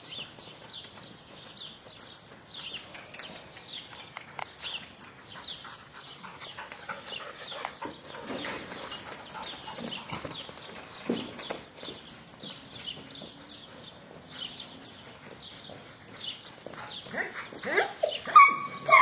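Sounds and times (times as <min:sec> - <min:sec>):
hooves thudding on sand: 0:00.0 - 0:18.0.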